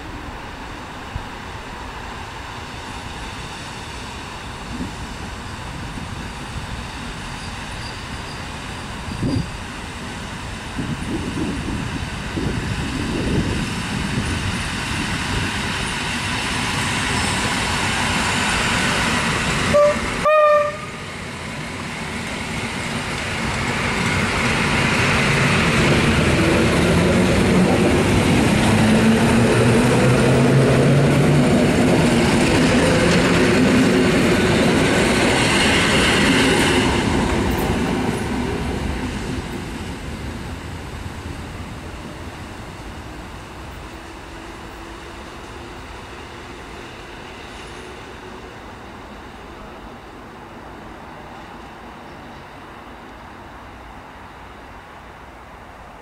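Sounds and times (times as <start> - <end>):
train wheels rumbling on rail: 0.0 - 56.0
train horn blasts: 19.7 - 21.0
train motor hum: 22.2 - 48.4.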